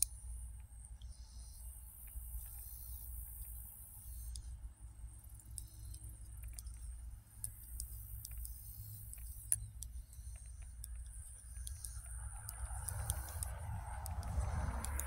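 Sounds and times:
knitting needles clicking: 5.4s - 15.0s.

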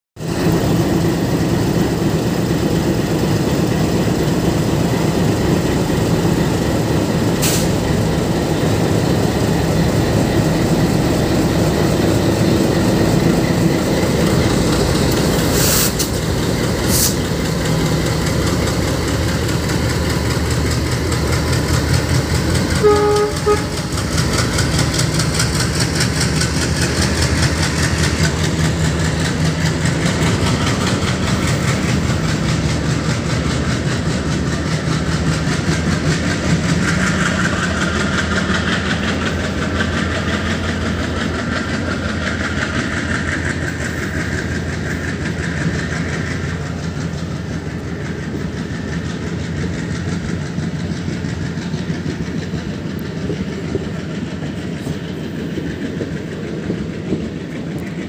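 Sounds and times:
diesel locomotive engines: 0.2s - 58.0s
train wheels clicking over rail joints: 0.2s - 58.0s
train horn toot: 22.8s - 24.0s.

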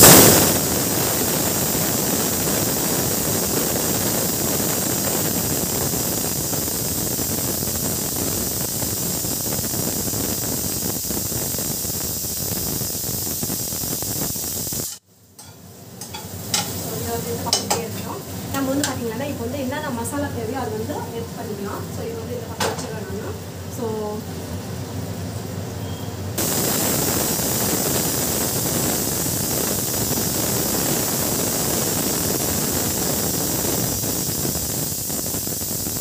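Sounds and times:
food sizzling in oil: 0.0s - 24.2s, 26.4s - 36.0s
spatula clicks on pan: 15.4s - 16.8s, 17.5s - 17.8s.

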